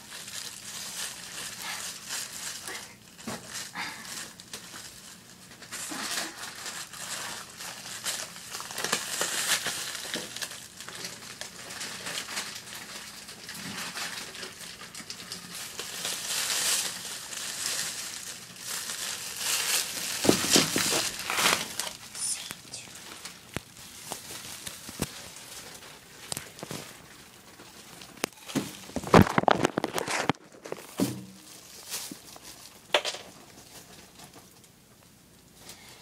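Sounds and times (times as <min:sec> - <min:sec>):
plastic bag crinkling: 0:00.0 - 0:34.7.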